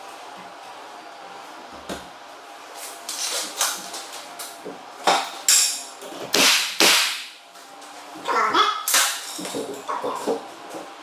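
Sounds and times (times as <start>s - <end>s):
nail gun firing: 6.4s - 7.4s.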